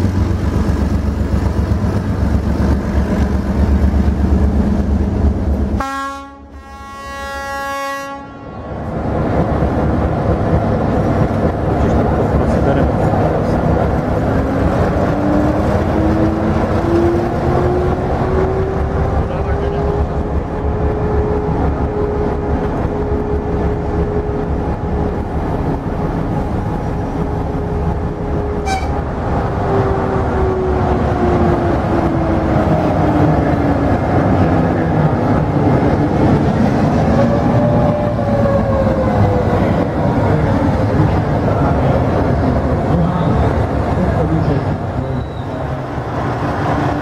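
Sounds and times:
diesel locomotive engine rumble: 0:00.0 - 0:47.0.

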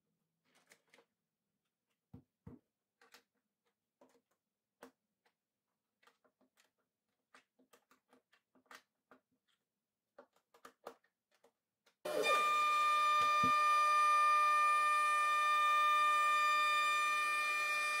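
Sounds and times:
wooden parts and clamps clicking: 0:00.4 - 0:01.2, 0:03.0 - 0:12.0
router spindle whine: 0:12.1 - 0:18.0.

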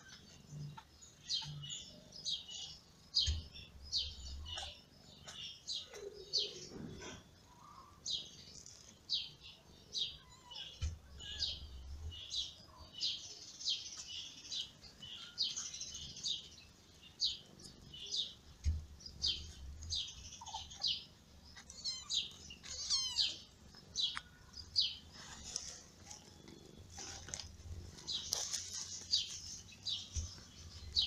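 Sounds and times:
kittens squeaking: 0:10.1 - 0:11.6, 0:20.4 - 0:29.1.

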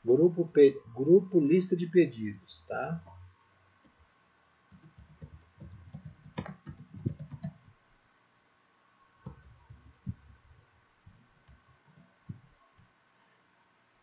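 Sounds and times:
typing on keyboard: 0:04.7 - 0:07.7, 0:09.2 - 0:10.5.

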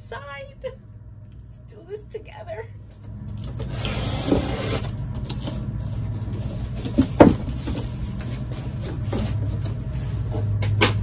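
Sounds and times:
steady low hum: 0:00.0 - 0:11.0
cardboard scraping and rustling: 0:03.4 - 0:10.6
box cutter slicing tape: 0:03.6 - 0:05.6.

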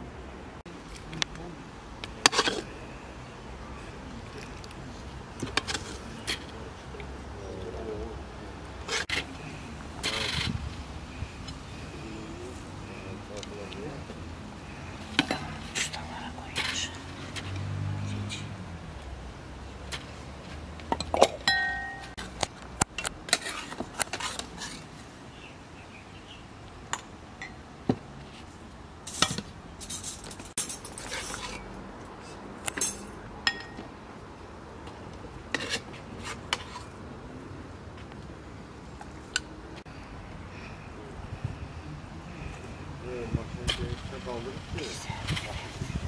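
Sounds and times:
dishes and cutlery clinking: 0:20.9 - 0:22.2, 0:32.7 - 0:33.8.

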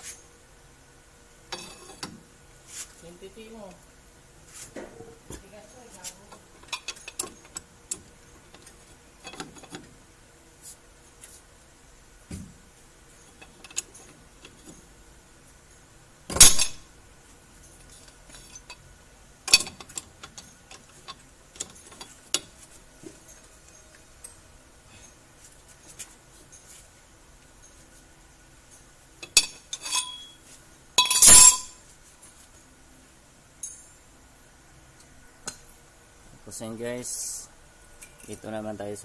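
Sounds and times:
loud metal clank: 0:16.3 - 0:16.8, 0:31.0 - 0:31.8
metallic clinks of wrench: 0:29.2 - 0:30.4.

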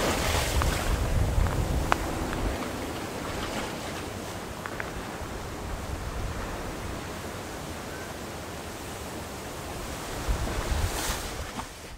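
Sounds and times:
water moving through slush ice: 0:00.0 - 0:05.2, 0:09.9 - 0:11.9
wind rumbling on microphone: 0:00.0 - 0:11.9.

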